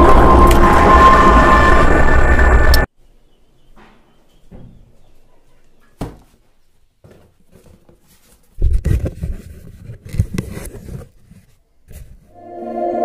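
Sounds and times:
cardboard scraping and rustling: 7.1s - 12.2s.

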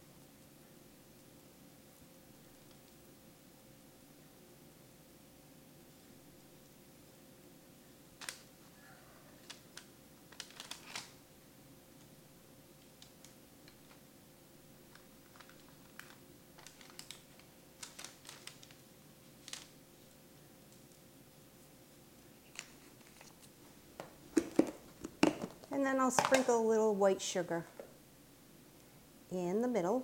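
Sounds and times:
sugar crystals clicking: 14.9s - 19.8s.

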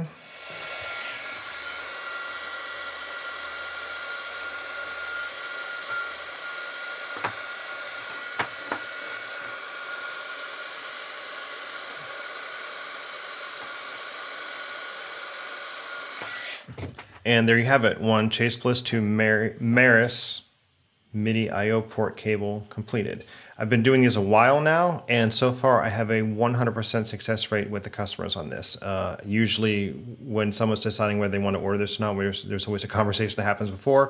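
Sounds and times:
heat gun fan whining: 0.0s - 17.8s.

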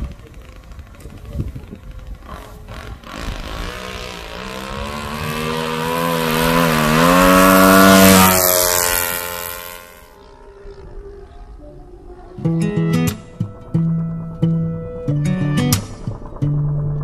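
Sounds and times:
model airplane engine buzzing: 0.0s - 11.5s.

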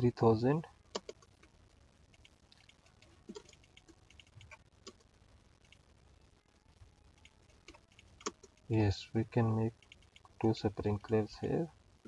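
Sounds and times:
computer mouse clicks: 0.9s - 1.4s, 2.1s - 5.0s, 7.2s - 8.7s, 9.8s - 10.4s
keyboard keys clicking: 2.2s - 5.0s.

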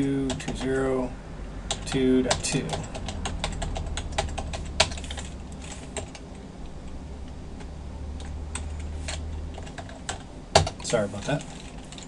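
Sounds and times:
computer keyboard keystrokes: 0.2s - 0.8s, 1.7s - 6.2s, 8.2s - 12.0s.

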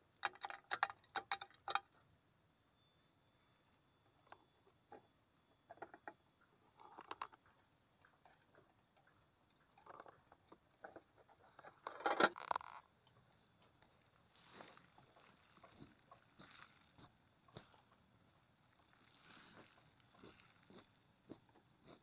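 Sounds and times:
crickets scrabbling in plastic box: 0.2s - 1.9s, 5.7s - 8.7s, 9.6s - 12.9s
rustle of handling: 13.5s - 17.9s, 18.8s - 21.0s.

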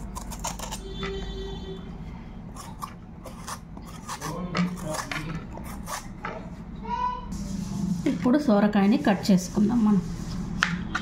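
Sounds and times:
vegetable peeler scraping: 0.0s - 1.3s, 2.5s - 6.2s.

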